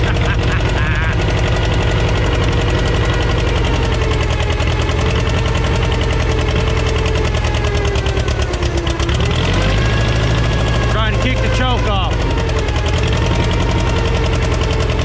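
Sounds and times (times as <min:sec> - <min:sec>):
dozer engine running: 0:00.0 - 0:15.0.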